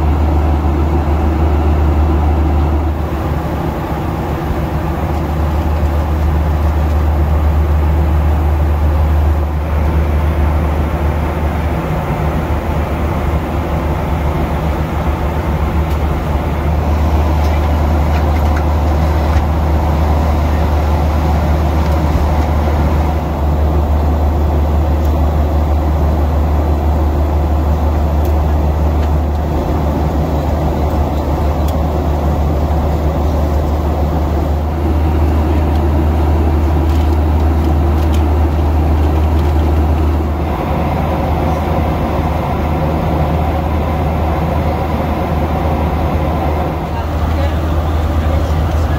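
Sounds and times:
airplane cabin engine rumble: 0.0s - 48.9s.

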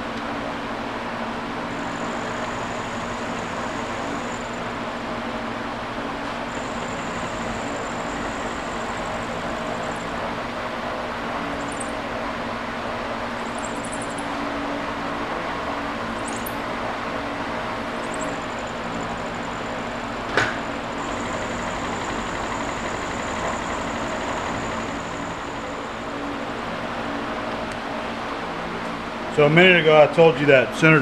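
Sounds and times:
milling machine hum: 0.1s - 29.3s
faint high whine: 1.5s - 5.0s, 6.4s - 10.6s.

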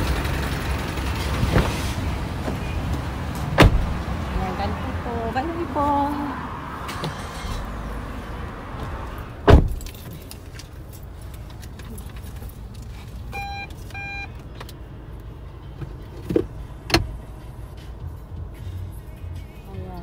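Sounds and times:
car door shutting: 1.4s - 2.7s, 3.4s - 4.0s, 6.8s - 7.8s, 8.8s - 10.1s, 16.2s - 17.1s
short beeps: 13.3s - 14.4s.

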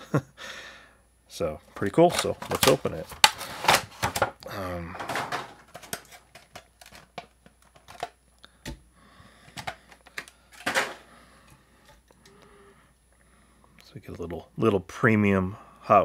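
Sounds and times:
plastic and cardboard crackling: 1.8s - 4.4s, 5.0s - 8.8s.

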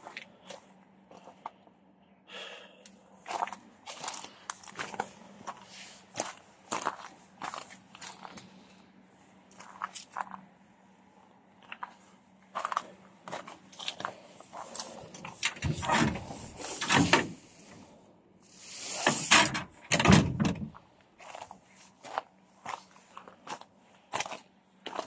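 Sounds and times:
loose metal panels rattling: 15.1s - 17.4s.

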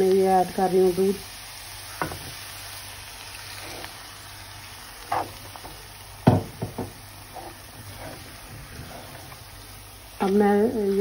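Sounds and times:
spatula scraping frying pan: 3.4s - 4.1s, 5.1s - 5.6s, 7.2s - 11.0s.

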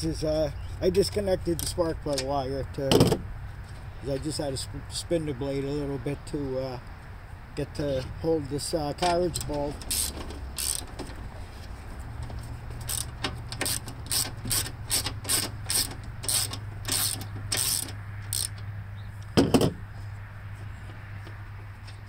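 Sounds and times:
ratchet wrench clicking: 9.4s - 11.1s, 12.8s - 18.6s.

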